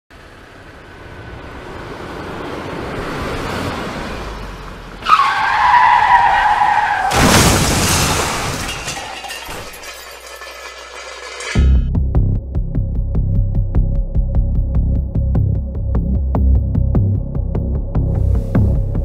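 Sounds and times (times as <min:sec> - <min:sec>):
car approaching: 0:00.1 - 0:07.1
tyres squealing in a skid: 0:05.0 - 0:11.6
loud car crash: 0:05.1 - 0:11.8.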